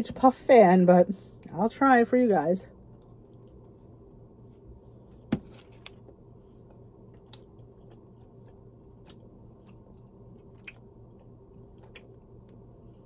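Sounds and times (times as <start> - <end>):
low steady hum: 0.0 - 13.0
quiet chewing: 7.1 - 13.0.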